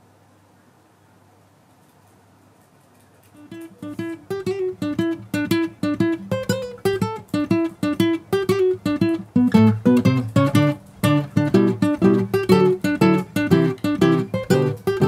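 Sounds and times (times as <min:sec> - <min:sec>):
plucked acoustic guitar music: 0:03.4 - 0:15.0.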